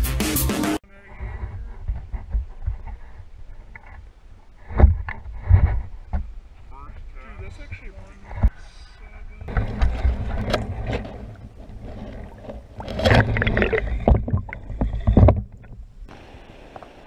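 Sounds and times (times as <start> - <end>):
water splashing and sloshing: 9.4 - 17.0.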